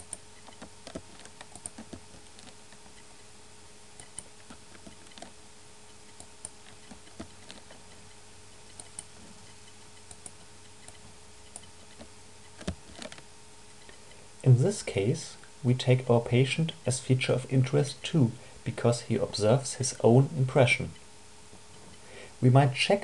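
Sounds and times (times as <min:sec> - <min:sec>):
keyboard keystrokes: 0:00.0 - 0:02.8, 0:10.1 - 0:13.2
faint steady hum: 0:00.0 - 0:23.0
mouse clicks: 0:04.0 - 0:05.3, 0:08.7 - 0:13.2.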